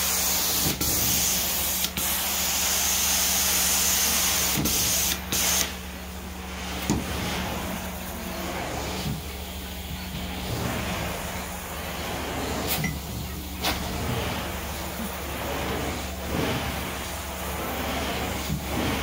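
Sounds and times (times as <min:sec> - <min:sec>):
steam cleaner wand hissing: 0:00.0 - 0:05.8, 0:06.8 - 0:19.0
machine low hum: 0:05.8 - 0:19.0
suction noise: 0:06.6 - 0:19.0.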